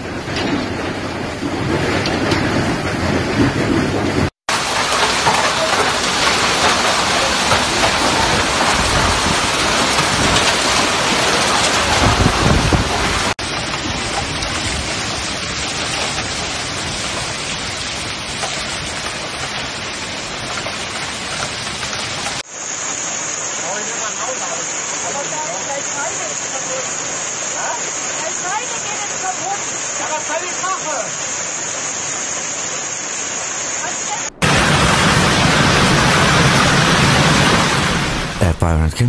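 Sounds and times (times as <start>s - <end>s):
heavy hail and rain: 0.0s - 39.0s
low rumble of thunder: 6.0s - 17.4s, 34.3s - 38.4s.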